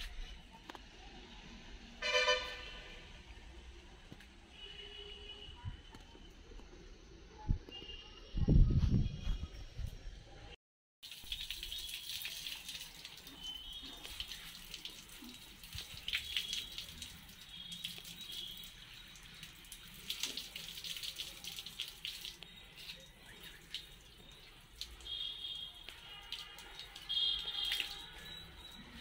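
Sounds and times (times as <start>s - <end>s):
water pouring onto plants: 11.0s - 29.0s.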